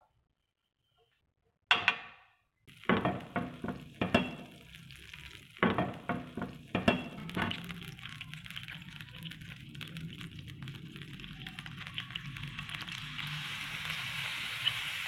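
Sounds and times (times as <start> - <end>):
spoon scraping and tapping pan: 1.7 - 4.7, 5.6 - 7.7
butter sizzling in a pan: 2.7 - 15.0.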